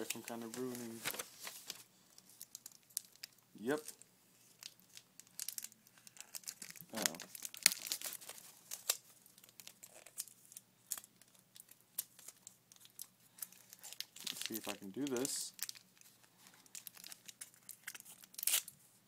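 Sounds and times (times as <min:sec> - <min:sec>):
paper crinkling and tearing: 0:00.0 - 0:10.3, 0:10.9 - 0:18.7.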